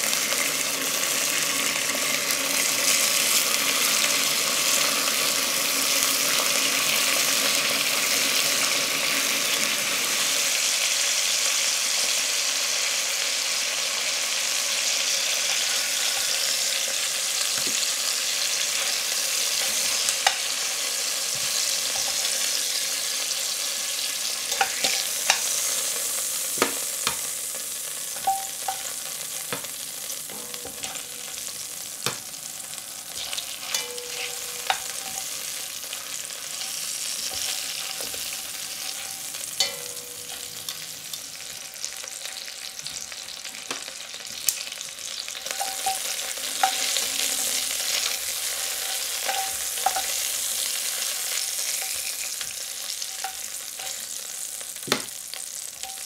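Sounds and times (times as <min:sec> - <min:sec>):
meat sizzling in oil: 0:00.0 - 0:56.0
metal tongs clicking on pot: 0:24.5 - 0:25.7, 0:28.2 - 0:29.7, 0:30.3 - 0:32.2, 0:33.2 - 0:35.6, 0:45.4 - 0:47.0, 0:47.8 - 0:54.1.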